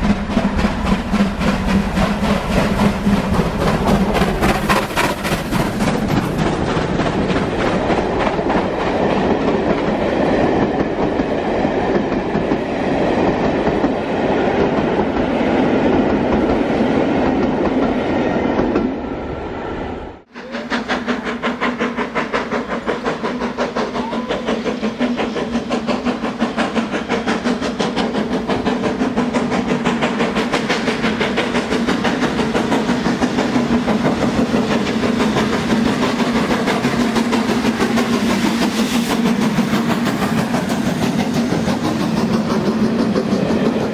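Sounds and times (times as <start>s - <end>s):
steam locomotive exhaust chuffs: 0.0s - 16.6s, 20.3s - 43.9s
train wheels rumbling and rattling: 0.0s - 19.6s, 20.2s - 43.9s.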